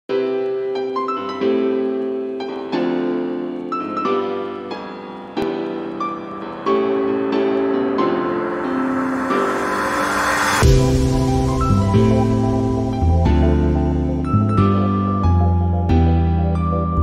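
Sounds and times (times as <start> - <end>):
ringing music chords: 5.5 - 14.6.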